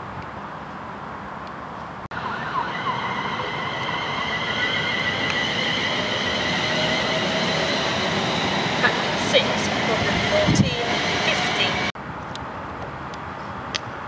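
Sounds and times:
train traction whine: 0:02.1 - 0:12.0.

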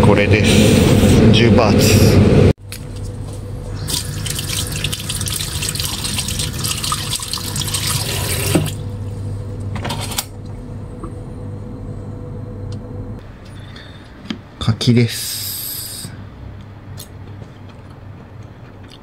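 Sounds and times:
tap water running into sink: 0:03.8 - 0:08.8
water splash: 0:03.8 - 0:08.8.

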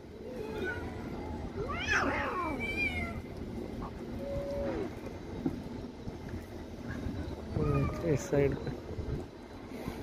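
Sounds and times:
low background rumble: 0:00.0 - 0:10.0
cats meowing: 0:00.2 - 0:03.2, 0:07.5 - 0:08.6.

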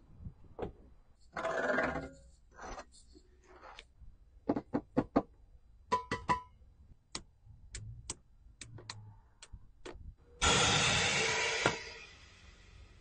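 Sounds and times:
sharp clicks and ticks: 0:07.1 - 0:10.0
burst of hissing noise: 0:10.4 - 0:13.0.

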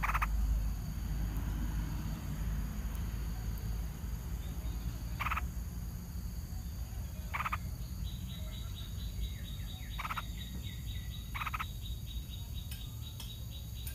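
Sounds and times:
bird rasping alarm calls: 0:00.0 - 0:00.4, 0:05.1 - 0:05.5, 0:07.2 - 0:07.7, 0:08.3 - 0:12.0.

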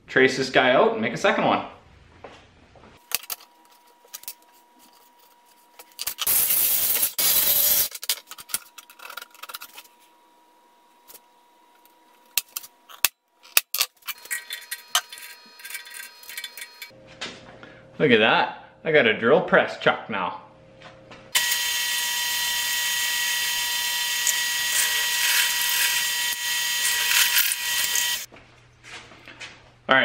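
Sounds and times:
harsh metal scraping: 0:14.0 - 0:16.9
drill press humming: 0:21.4 - 0:28.3.

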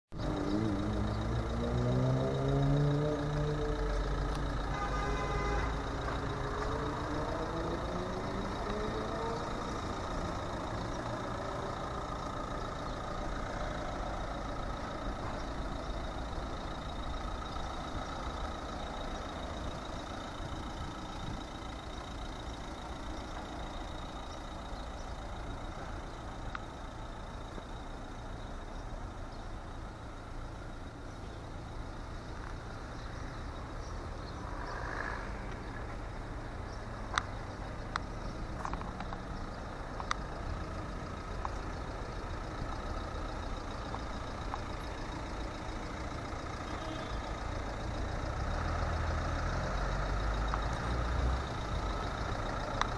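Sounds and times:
motor traffic: 0:00.1 - 0:52.9
vehicle engine speeding up: 0:00.2 - 0:04.6, 0:06.0 - 0:14.8, 0:34.4 - 0:36.2.

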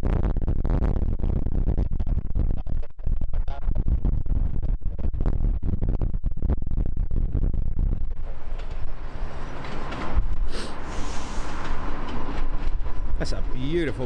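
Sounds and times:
wind buffeting microphone: 0:03.6 - 0:14.0
jet engines rumbling: 0:08.2 - 0:14.0.

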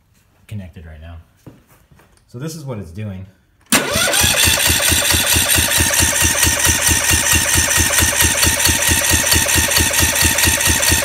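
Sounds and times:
engine cranking on electric starter: 0:03.7 - 0:11.0.

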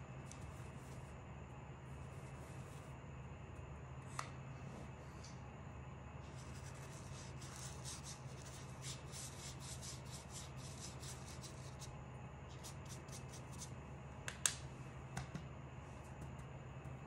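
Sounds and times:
low steady hum: 0:00.0 - 0:17.0
paintbrush scrubbing on paper: 0:06.3 - 0:11.9, 0:12.5 - 0:13.7.

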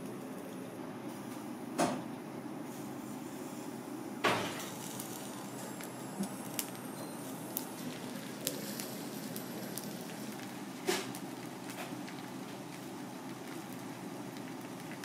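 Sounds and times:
fish sizzling on a grill: 0:02.7 - 0:15.0
juices popping and crackling: 0:04.3 - 0:15.0.

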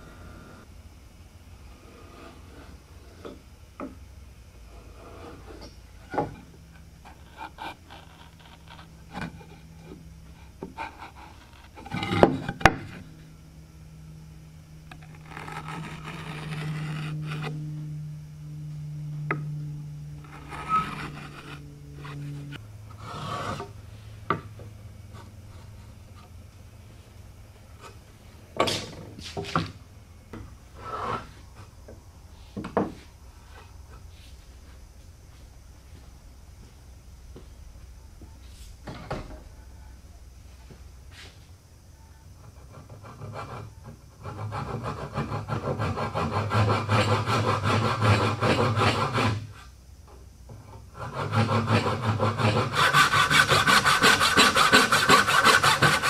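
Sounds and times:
marking gauge scraping wood: 0:07.0 - 0:13.1, 0:14.9 - 0:17.6, 0:20.2 - 0:23.7, 0:30.8 - 0:31.4, 0:42.5 - 0:49.7, 0:50.9 - 0:56.0.

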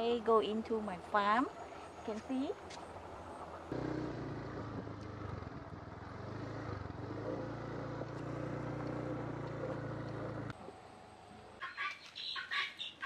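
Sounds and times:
vehicle engine running: 0:00.8 - 0:10.6.

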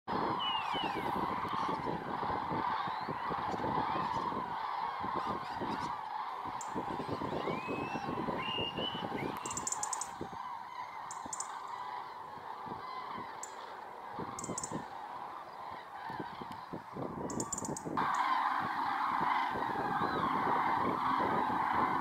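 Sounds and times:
cranes honking chorus: 0:00.1 - 0:22.0
robin ticking alarm call: 0:07.5 - 0:10.2, 0:11.1 - 0:11.7, 0:14.4 - 0:14.8, 0:17.3 - 0:18.3.

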